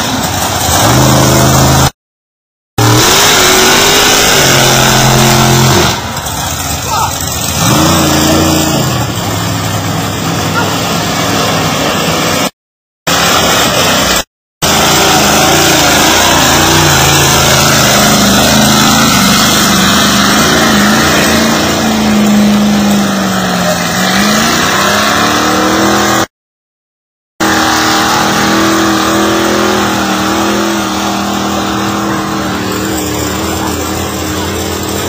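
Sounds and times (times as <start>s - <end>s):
truck engine revving hard: 0.0s - 2.0s, 2.8s - 26.3s, 27.4s - 35.0s
water and mud washing: 13.1s - 26.2s, 27.4s - 35.0s.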